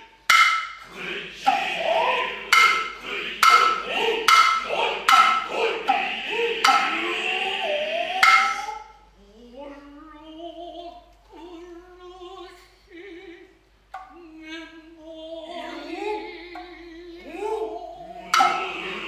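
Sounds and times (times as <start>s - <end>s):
sharp knock: 0.3s - 0.9s, 2.5s - 7.0s, 8.2s - 8.7s
slow wavering chant: 0.8s - 19.0s.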